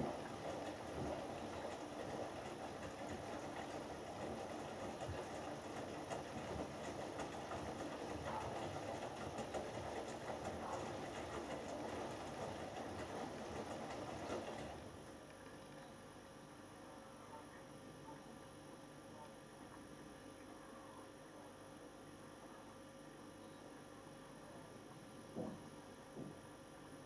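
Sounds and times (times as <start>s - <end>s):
washing machine drum tumbling: 0.0s - 14.8s
water and laundry sloshing: 0.0s - 14.8s.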